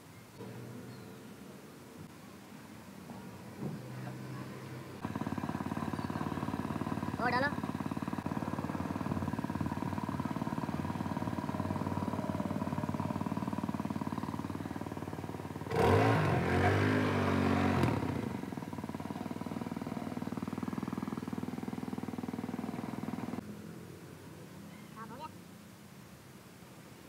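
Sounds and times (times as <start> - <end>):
small petrol engine running: 3.2 - 23.4.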